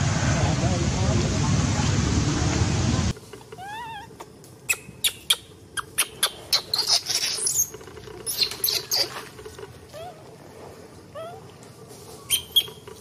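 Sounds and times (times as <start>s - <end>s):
baby monkey squeaking and squealing: 3.6s - 9.1s, 12.3s - 12.8s.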